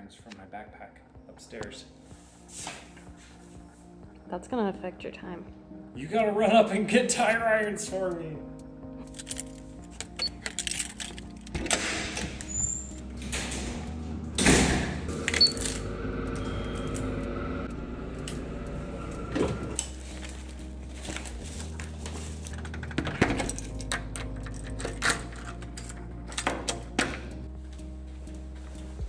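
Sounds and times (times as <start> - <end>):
keys jingling in door lock: 9.0 - 11.7, 22.5 - 26.9
elevator hum: 11.4 - 20.9
elevator doors moving: 11.5 - 20.0.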